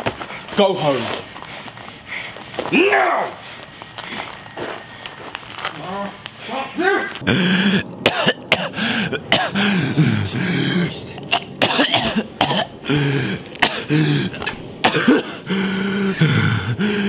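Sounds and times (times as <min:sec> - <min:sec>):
man coughing harshly: 0:07.2 - 0:10.4, 0:11.3 - 0:12.8, 0:13.6 - 0:16.5
man groaning in pain: 0:12.8 - 0:17.0.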